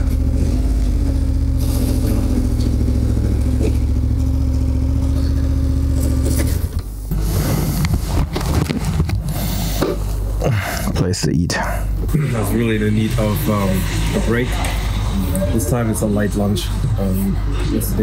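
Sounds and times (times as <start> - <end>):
motorcycle engine running: 0.0 - 7.1.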